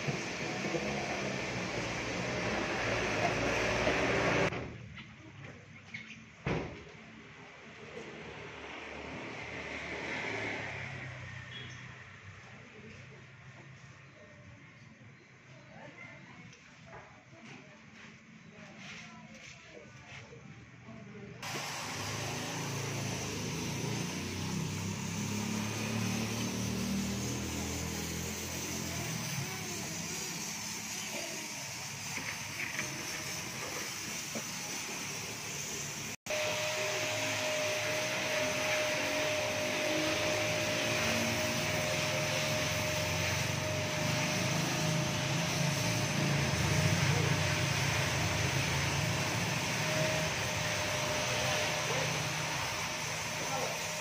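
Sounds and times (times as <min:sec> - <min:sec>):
motor running with hiss: 0:00.0 - 0:04.5, 0:21.4 - 0:54.0.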